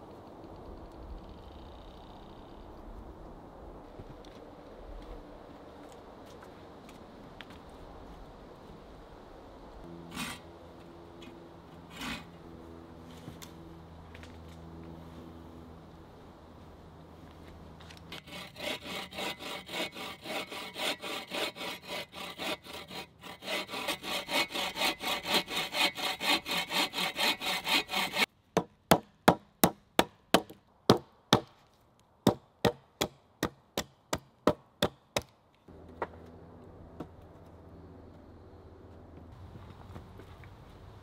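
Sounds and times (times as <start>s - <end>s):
bow saw cutting a log: 10.0s - 10.5s, 11.2s - 12.4s, 18.1s - 28.3s.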